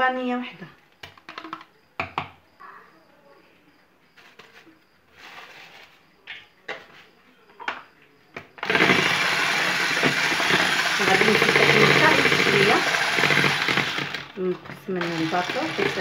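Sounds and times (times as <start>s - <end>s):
electric hand mixer whisking: 8.6s - 14.4s, 15.0s - 16.0s.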